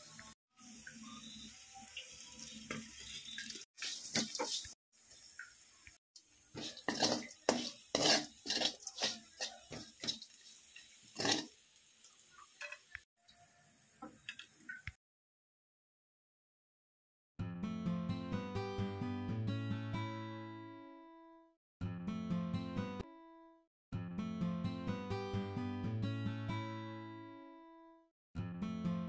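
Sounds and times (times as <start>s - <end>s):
frying hiss: 0.0s - 15.0s
metal spatula scraping a pan: 2.7s - 4.8s, 6.6s - 11.6s.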